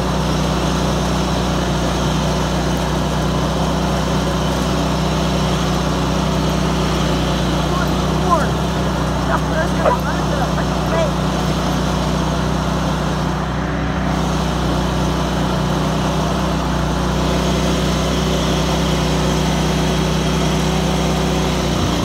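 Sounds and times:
riding lawn mower engine running: 0.0s - 22.0s.

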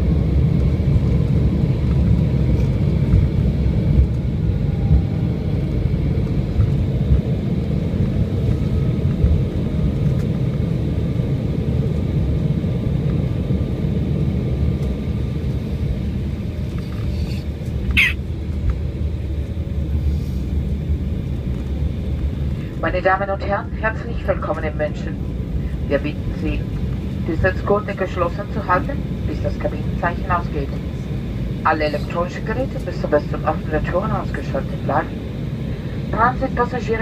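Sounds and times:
airplane engines and wheels rumbling: 0.0s - 37.0s
high-pitched squeak: 17.2s - 18.2s.

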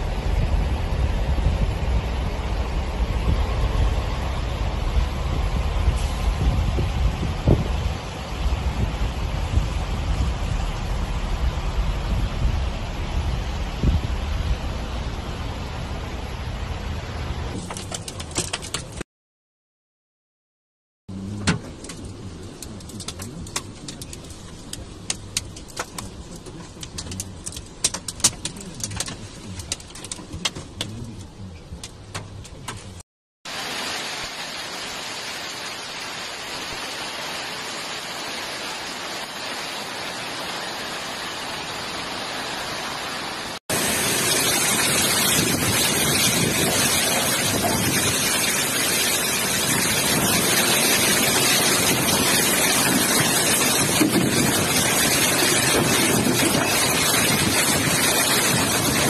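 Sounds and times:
hail and rain pouring down: 17.5s - 19.0s, 21.5s - 31.2s, 33.5s - 59.0s
hailstones cracking on hard ground: 17.6s - 19.0s, 21.8s - 31.0s, 43.7s - 59.0s.

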